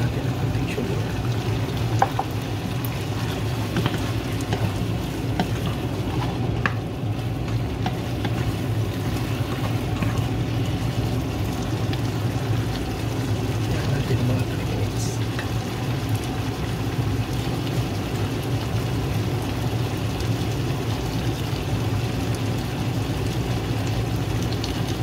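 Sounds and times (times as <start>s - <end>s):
steady low hum: 0.0s - 16.5s
meat sizzling in frying pan: 0.0s - 25.0s
wooden spatula scraping pan: 3.0s - 6.8s.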